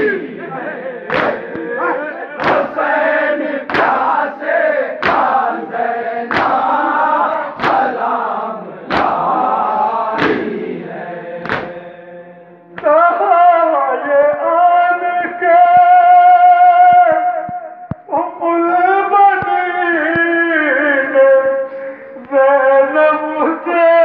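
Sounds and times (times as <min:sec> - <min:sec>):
crowd of men chanting: 0:00.0 - 0:17.2
collective chest beating slaps: 0:01.0 - 0:01.8, 0:02.4 - 0:10.6, 0:11.4 - 0:11.8.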